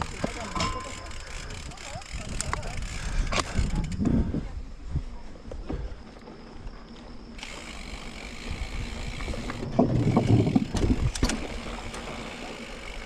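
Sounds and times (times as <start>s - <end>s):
bike knocks and rattles: 0.0s - 4.0s, 8.3s - 13.0s
wind hiss: 7.4s - 12.1s
tyre rumble on rough trail: 8.4s - 12.6s.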